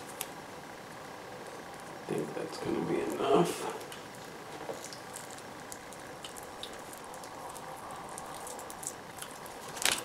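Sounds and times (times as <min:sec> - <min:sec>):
electrical tape rustling: 0:00.0 - 0:10.0
tape snapping: 0:08.8 - 0:10.0.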